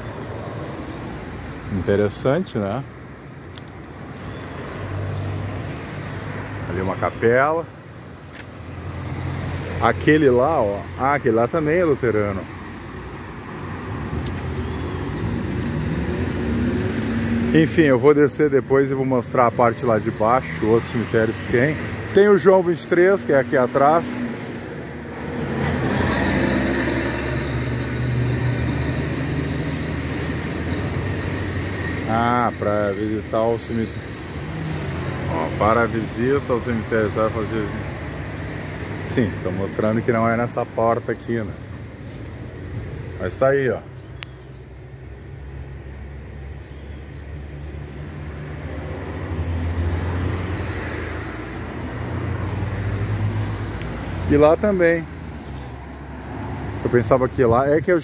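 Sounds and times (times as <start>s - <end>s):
vehicle engine drone: 4.5s - 57.9s.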